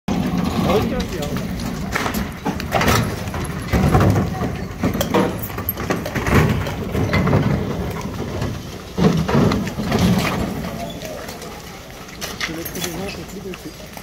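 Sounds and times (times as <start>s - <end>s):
sharp bangs and clatter: 0.1s - 10.9s.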